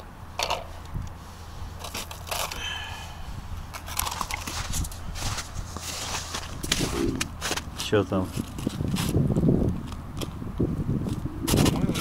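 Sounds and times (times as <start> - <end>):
crunching and scraping on snowy ice: 1.4 - 10.4, 11.0 - 12.0
wind rumbling on microphone: 3.1 - 12.0.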